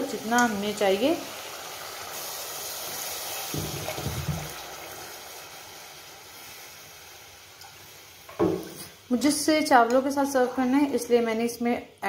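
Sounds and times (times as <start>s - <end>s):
hot oil hissing: 0.0s - 9.7s
water splashing into a pot: 0.2s - 7.8s.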